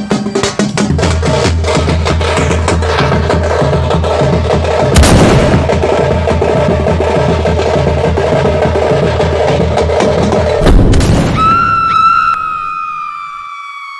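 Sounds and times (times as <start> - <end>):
music with heavy bass beat: 0.0 - 10.7
sudden loud hit: 4.9 - 6.0, 10.6 - 11.7.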